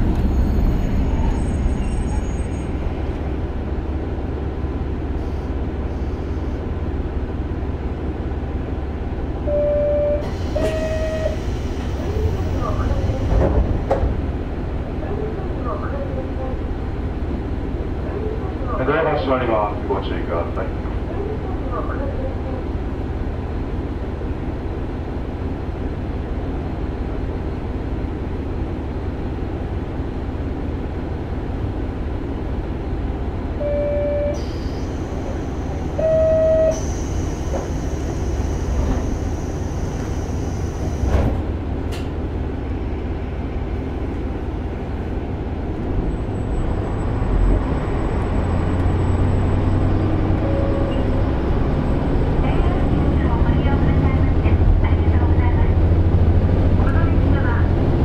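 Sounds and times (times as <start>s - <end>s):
diesel railcar running rumble: 0.0s - 58.0s
train horn toots: 9.5s - 11.4s.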